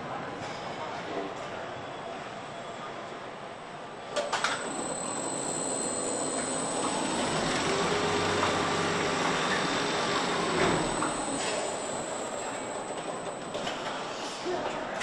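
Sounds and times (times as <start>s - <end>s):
factory machinery rushing din: 4.2s - 15.0s
faint thin whine: 4.2s - 15.0s.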